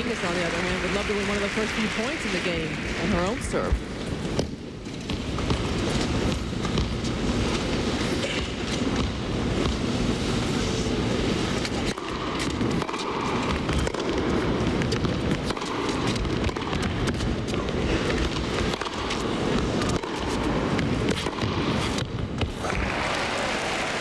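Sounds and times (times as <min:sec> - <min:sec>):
arena crowd rumble: 0:00.0 - 0:04.4, 0:22.5 - 0:24.0
rackets striking tennis ball: 0:04.1 - 0:09.9, 0:11.5 - 0:22.9.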